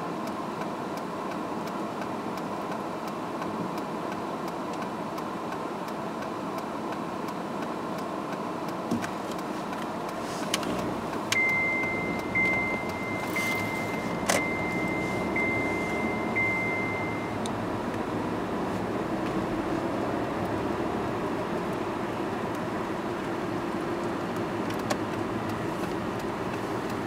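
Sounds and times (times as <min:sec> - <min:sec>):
car cabin noise: 0:00.0 - 0:27.0
high electronic tone: 0:11.3 - 0:17.5.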